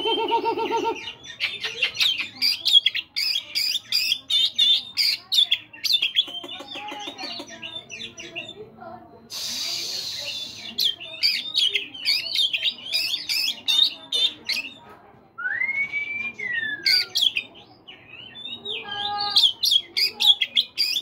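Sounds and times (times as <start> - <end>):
bird singing chirps and whistles: 15.4 - 20.1.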